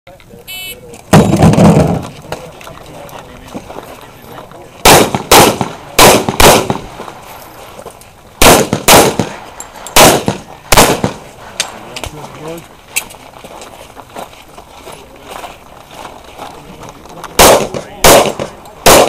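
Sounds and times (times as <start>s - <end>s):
pistol shots echoing: 4.8s - 6.9s, 8.4s - 11.2s, 17.4s - 19.0s.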